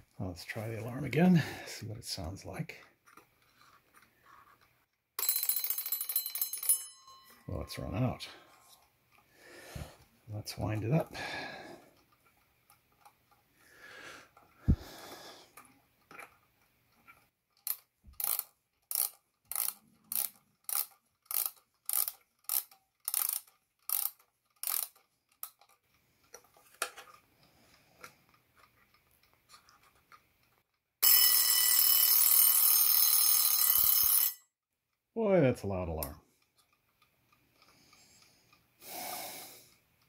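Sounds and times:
alarm bell ringing: 0:05.2 - 0:08.2, 0:31.0 - 0:34.4
winding ratchet clicking: 0:17.5 - 0:25.8, 0:32.1 - 0:34.4.

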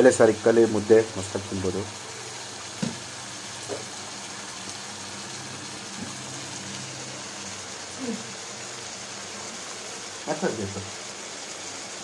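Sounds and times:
curry sizzling in a pan: 0:00.0 - 0:12.0
faint knocks: 0:02.8 - 0:03.0.

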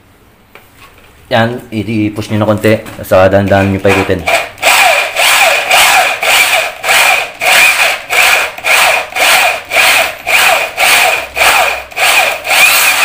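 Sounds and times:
drill boring into wood: 0:03.9 - 0:13.0.

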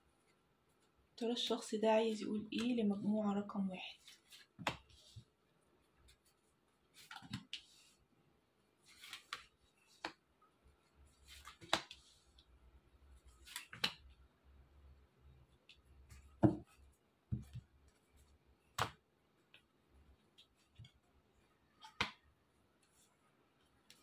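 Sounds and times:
cards snapping and sliding: 0:08.9 - 0:10.2, 0:11.4 - 0:12.0, 0:13.4 - 0:14.0.

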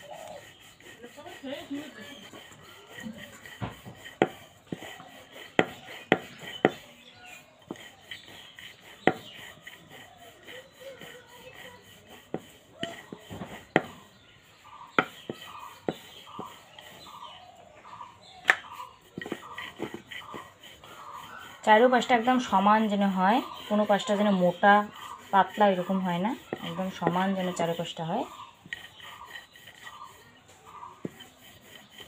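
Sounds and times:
rolling pin rubbing dough: 0:00.0 - 0:32.0
wooden knocks of rolling pin: 0:09.0 - 0:09.3, 0:12.3 - 0:14.0, 0:18.4 - 0:20.5.

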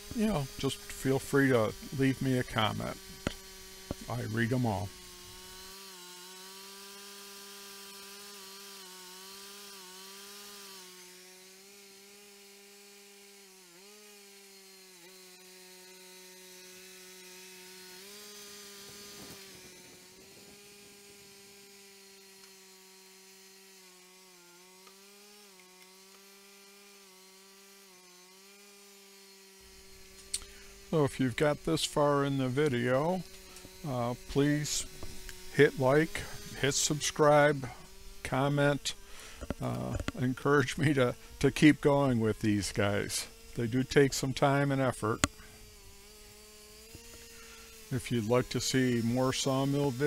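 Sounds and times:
gas engine humming: 0:00.0 - 0:05.5, 0:29.6 - 0:46.0
saw blade hissing in wood: 0:00.0 - 0:05.7, 0:17.8 - 0:21.6, 0:29.6 - 0:50.0.

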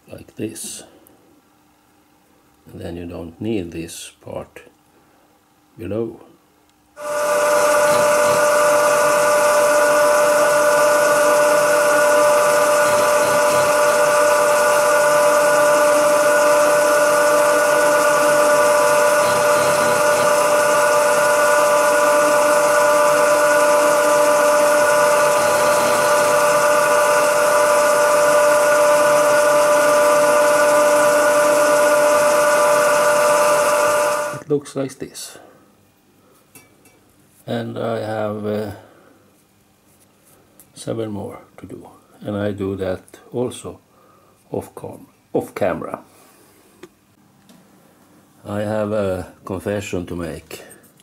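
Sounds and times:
milling machine whining: 0:07.0 - 0:34.5.

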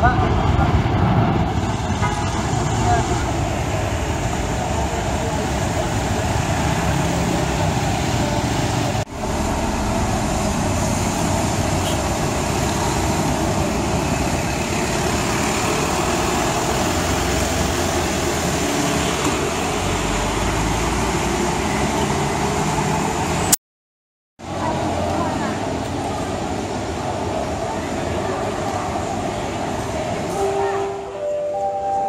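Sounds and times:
city bus passing: 0:00.0 - 0:23.6, 0:24.4 - 0:32.0
motorcycles passing: 0:00.0 - 0:23.6.

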